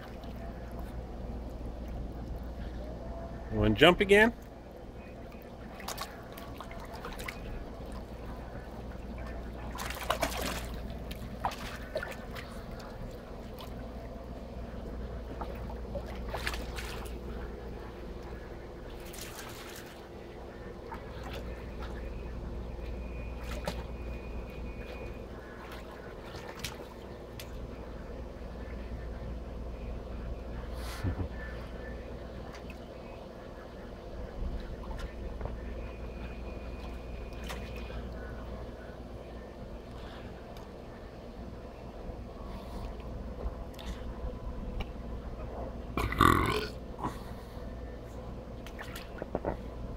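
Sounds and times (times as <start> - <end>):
steady low hum: 0.0 - 49.9
water splashing: 5.6 - 8.5, 9.1 - 14.0, 15.3 - 17.4, 18.9 - 20.1.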